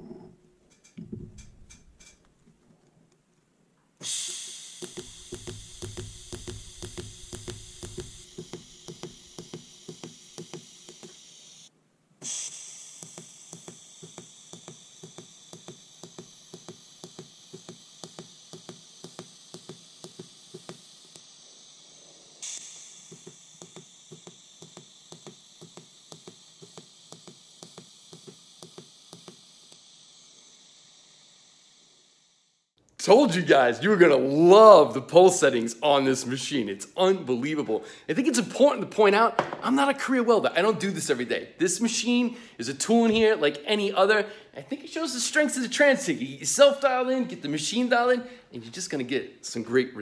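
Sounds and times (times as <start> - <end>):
welding arc hissing and ticking: 4.0 - 49.7.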